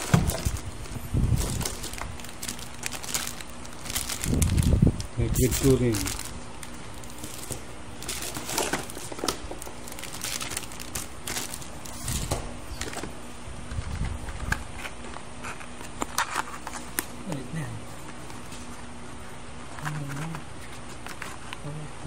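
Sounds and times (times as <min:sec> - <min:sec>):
plastic packaging crinkling: 0:00.0 - 0:13.1.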